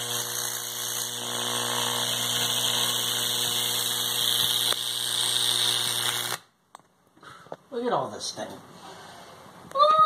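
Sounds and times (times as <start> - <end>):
sharp electrical crackle: 0.0 - 6.5
electrical arc buzzing: 0.0 - 6.6.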